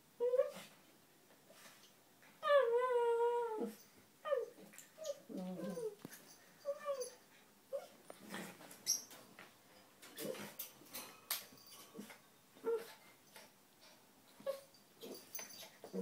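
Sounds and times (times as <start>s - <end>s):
small dogs whining: 2.4s - 9.1s, 12.0s - 13.0s, 14.4s - 16.0s.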